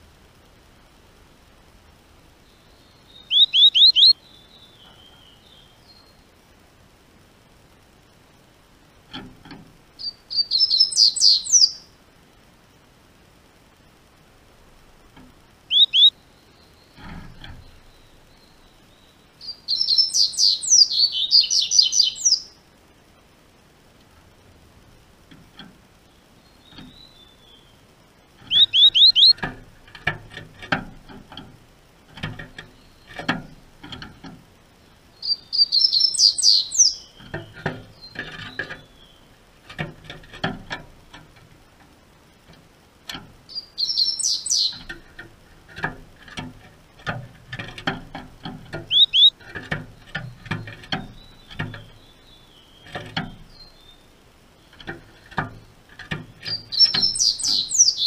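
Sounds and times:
bird chirping song: 2.3s - 6.4s, 9.1s - 12.0s, 15.6s - 22.6s, 25.9s - 29.7s, 32.2s - 40.8s, 43.1s - 46.4s, 47.0s - 58.0s
bird hopping on wooden perches: 3.3s - 4.2s, 9.1s - 11.8s, 14.7s - 16.2s, 16.9s - 18.8s, 24.1s - 58.0s.

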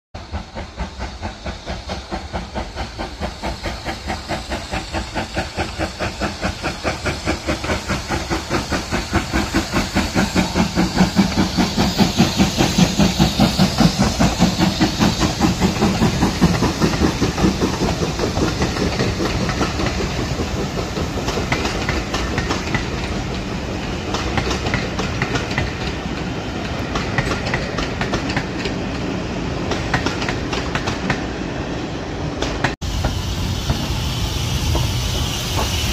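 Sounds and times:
steam locomotive exhaust beats: 0.2s - 31.4s, 32.3s - 35.9s
train wheels clickety-clack on track: 0.2s - 35.9s.

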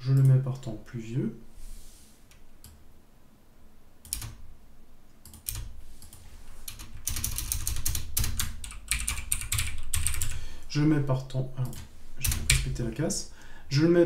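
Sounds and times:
typing on computer keyboard: 4.0s - 4.4s, 5.2s - 10.4s.

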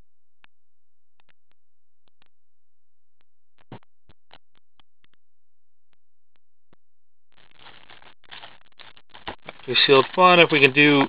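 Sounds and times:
plastic wrap crinkling: 7.4s - 11.0s.

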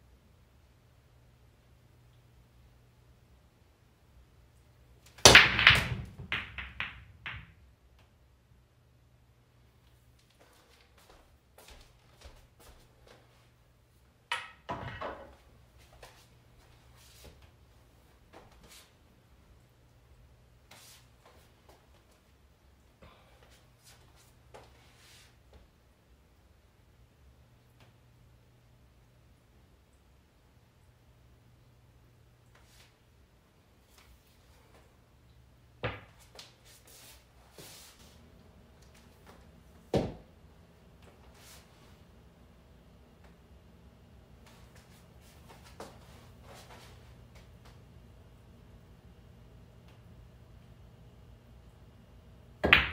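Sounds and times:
sharp knocks of pool balls: 5.2s - 7.6s, 52.6s - 52.9s.

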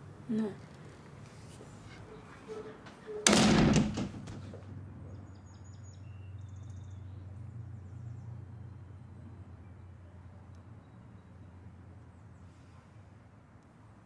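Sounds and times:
low outdoor hum: 0.0s - 14.0s
door slamming shut: 3.2s - 4.6s.

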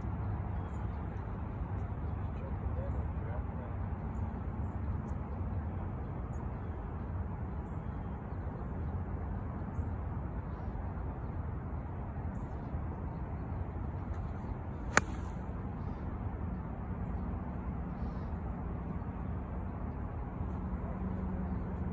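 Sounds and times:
low outdoor rumble: 10.2s - 21.9s
golf club striking ball: 14.9s - 15.5s.

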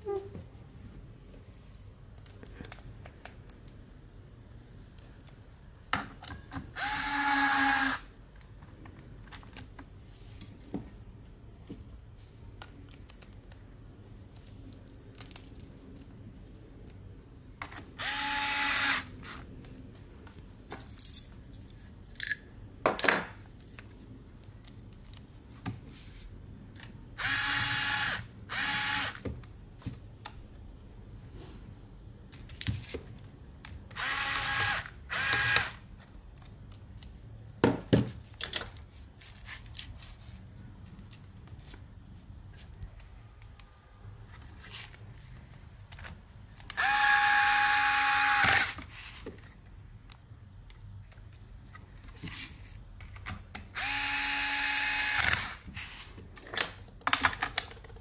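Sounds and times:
electric screwdriver whirring: 6.8s - 8.0s, 18.0s - 19.4s, 27.2s - 29.2s, 34.0s - 35.8s, 46.7s - 48.8s, 53.8s - 55.6s
metal parts clicking: 20.7s - 22.5s.

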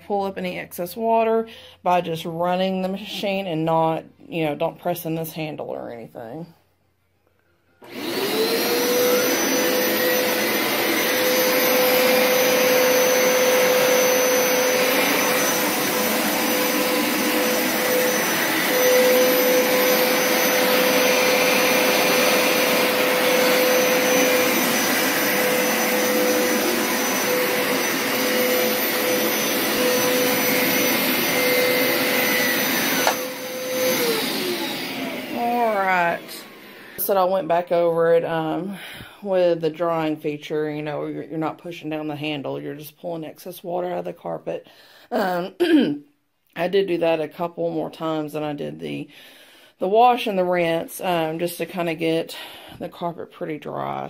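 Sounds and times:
carpet washer motor whining: 7.8s - 37.1s.

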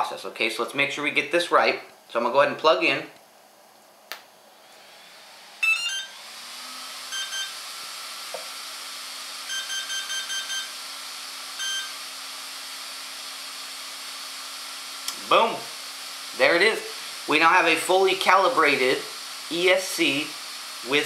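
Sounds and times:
cooling fan whirring: 0.0s - 21.0s
electronic beeps: 5.6s - 6.2s.

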